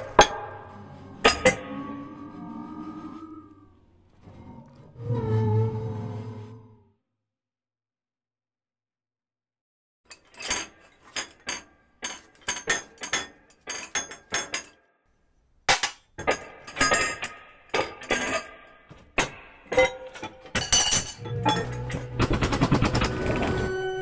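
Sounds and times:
sharp clinks and knocks: 15.7 - 22.2.

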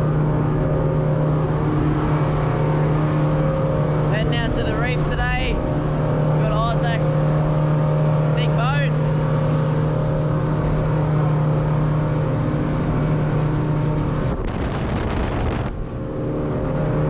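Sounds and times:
motorboat engine drone: 0.0 - 17.0
water and wind rushing: 0.0 - 17.0.

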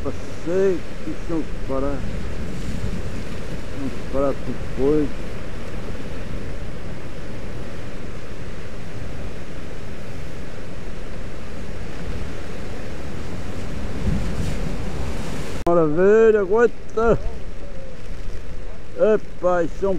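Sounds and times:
wind noise on microphone: 0.0 - 15.7
sea surf on rocky shore: 0.0 - 19.9.

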